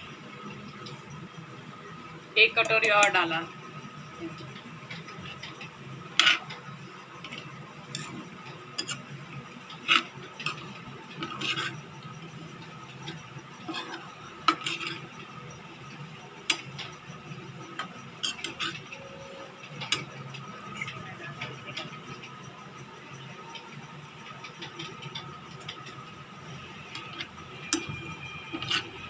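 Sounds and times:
ladle scraping frying pan: 0:09.8 - 0:11.8, 0:13.1 - 0:15.0.

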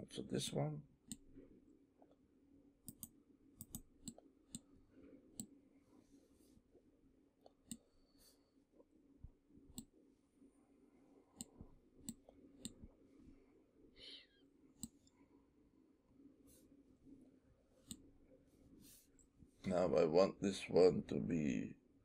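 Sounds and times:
low steady hum: 0:00.0 - 0:22.0
computer mouse clicks: 0:01.1 - 0:01.3, 0:02.8 - 0:04.7, 0:07.4 - 0:07.9, 0:09.7 - 0:09.9, 0:11.4 - 0:12.9, 0:14.8 - 0:15.2, 0:17.8 - 0:18.1.

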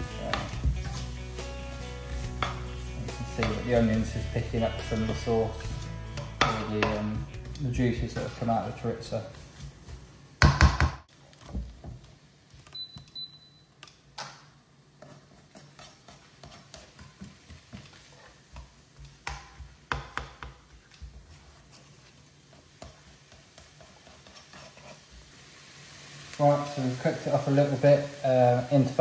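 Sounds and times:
spatula scraping a wok: 0:00.0 - 0:09.8, 0:15.0 - 0:19.0, 0:20.7 - 0:25.6
faint sizzle of frying: 0:00.0 - 0:29.0.

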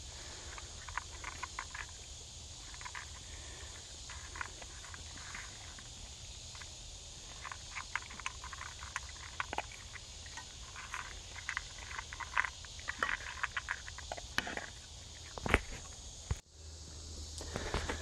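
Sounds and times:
dog crunching dry kibble: 0:00.2 - 0:02.0, 0:02.6 - 0:15.8.

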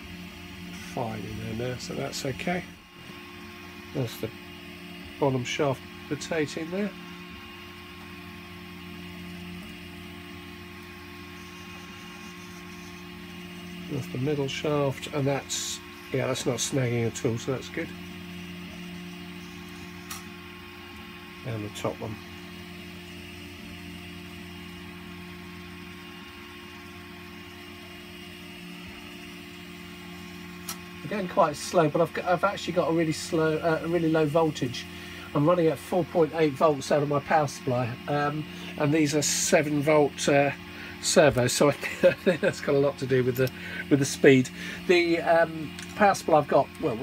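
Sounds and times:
servo humming: 0:00.0 - 0:47.0.

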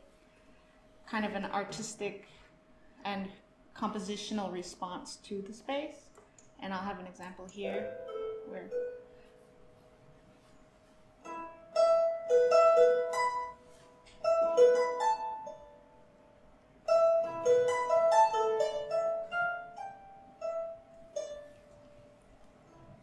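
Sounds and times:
harp music: 0:07.6 - 0:10.5, 0:11.2 - 0:23.0.

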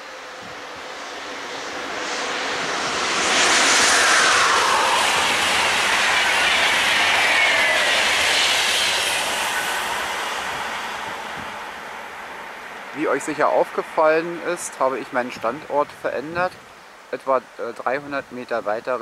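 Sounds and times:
locomotive whine: 0:00.0 - 0:13.2
train wheels rushing on rail: 0:01.8 - 0:13.4.

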